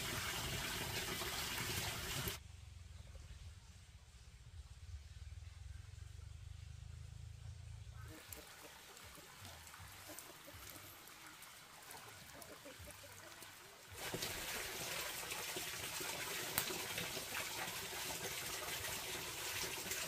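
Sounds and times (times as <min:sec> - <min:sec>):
water running in a stream: 0:00.0 - 0:02.4, 0:08.0 - 0:20.0.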